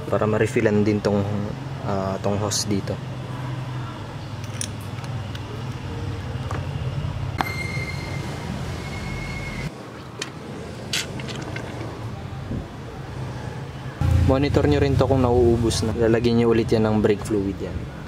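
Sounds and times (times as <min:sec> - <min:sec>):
steady low hum: 0:14.0 - 0:16.0.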